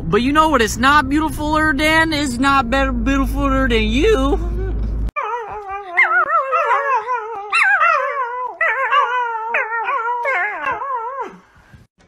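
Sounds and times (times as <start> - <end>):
puppy howling: 5.1 - 11.4.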